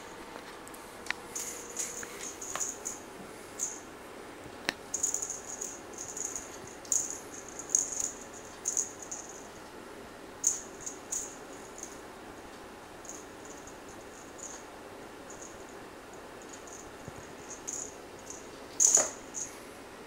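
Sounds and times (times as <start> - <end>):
string toy rattling: 17.5 - 19.5.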